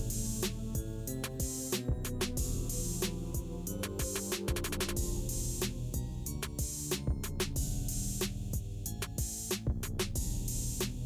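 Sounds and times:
drum beat: 0.0 - 11.0
sustained bass notes: 1.9 - 4.0.

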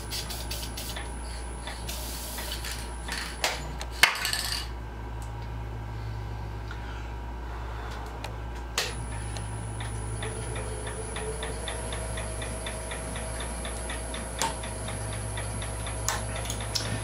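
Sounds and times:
steady low hum: 0.0 - 17.0
wood lathe high whine: 9.1 - 14.3
light rhythmic ticking: 9.7 - 17.0.

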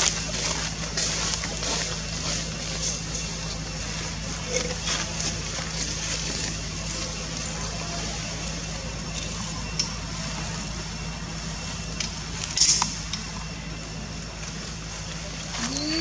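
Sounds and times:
rustle: 0.0 - 10.7, 14.3 - 16.0
low hum: 0.0 - 16.0.

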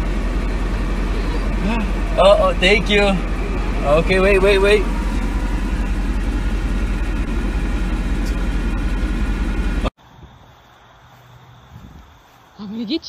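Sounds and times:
car engine idling: 0.0 - 9.9.

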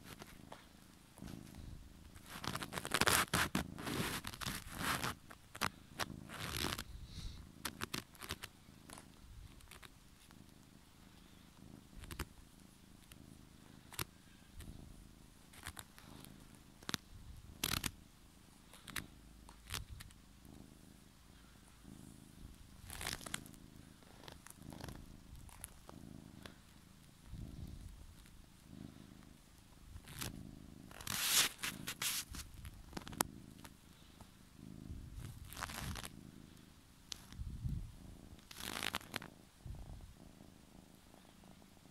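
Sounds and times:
rustles and clicks: 0.0 - 6.9, 7.6 - 10.4, 15.5 - 17.0, 22.5 - 28.4, 30.0 - 33.8, 35.2 - 36.2, 37.1 - 39.4
cat purring: 0.0 - 41.9.

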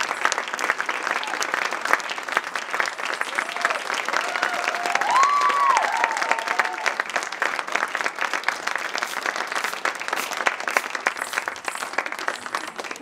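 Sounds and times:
audience applauding: 0.0 - 13.0
crowd whooping: 3.0 - 7.1.

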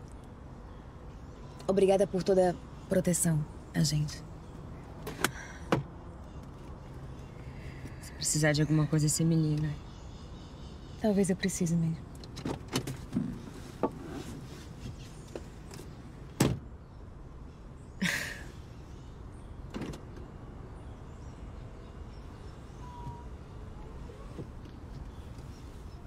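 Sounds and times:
car door shutting thud: 16.4 - 16.6.

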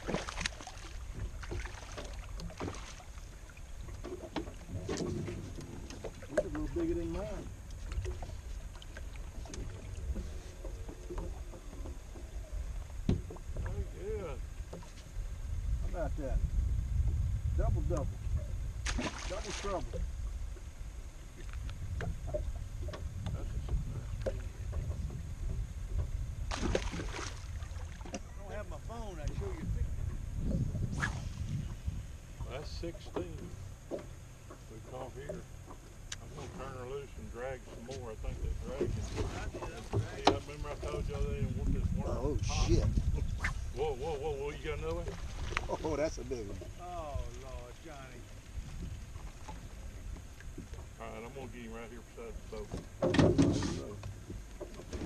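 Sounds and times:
fish splashing in water: 0.0 - 4.3, 18.8 - 20.0, 26.5 - 28.2
wind rumble on microphone: 0.0 - 34.2, 36.1 - 55.0.

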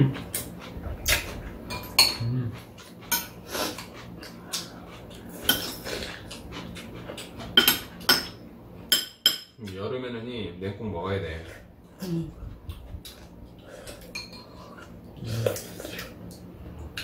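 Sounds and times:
spoons and chopsticks clinking on bowls: 1.6 - 4.0, 14.1 - 14.6.

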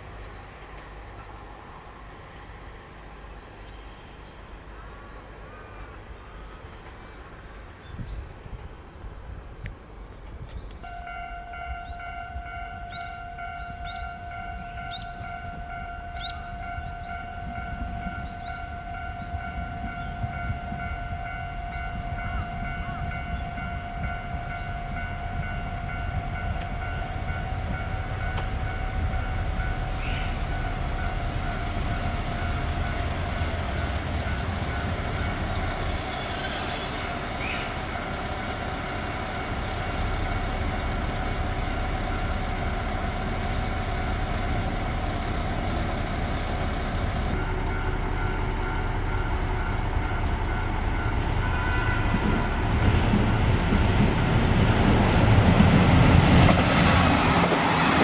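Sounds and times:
diesel train running past: 0.0 - 58.0
wheels squealing on track: 33.7 - 37.8.

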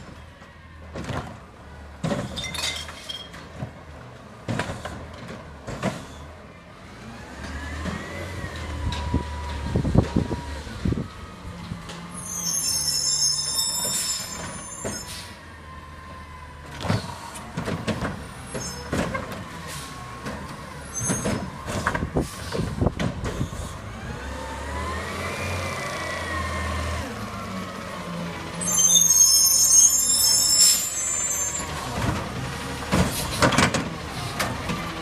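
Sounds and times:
air brakes hissing: 12.2 - 15.4, 22.2 - 23.8.

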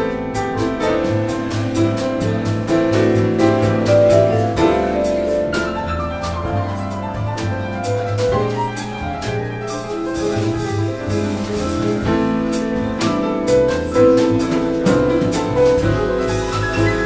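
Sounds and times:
piano: 0.0 - 17.0
upright bass notes: 0.0 - 17.0.

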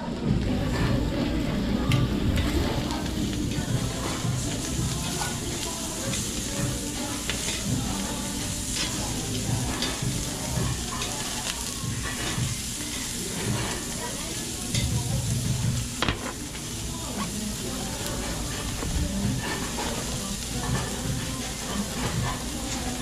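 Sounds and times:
meat sizzling on grill plate: 0.4 - 23.0.

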